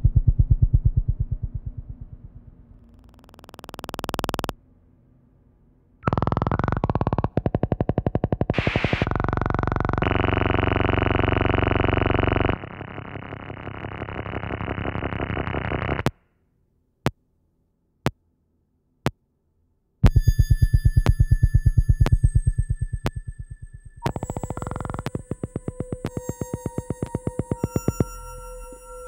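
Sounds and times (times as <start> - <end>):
fast-pulsing low tone: 0.0 - 4.6, 6.0 - 16.1, 20.0 - 28.8
grainy synth texture: 6.0 - 16.0, 20.1 - 29.0
rapidly pulsing synth chord: 7.7 - 16.0, 21.1 - 29.0.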